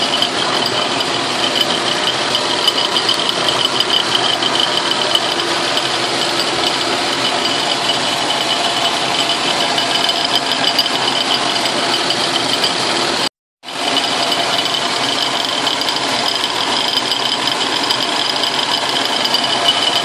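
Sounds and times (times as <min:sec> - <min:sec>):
high pulsing cutting tones: 0:00.0 - 0:13.0
metal milling noise: 0:00.0 - 0:20.0
rattling metal cutting noise: 0:00.0 - 0:20.0.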